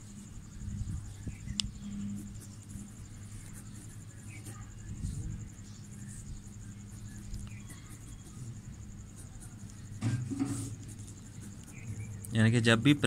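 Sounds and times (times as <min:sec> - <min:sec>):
cricket trilling: 0:00.0 - 0:13.0
low steady hum: 0:00.0 - 0:13.0.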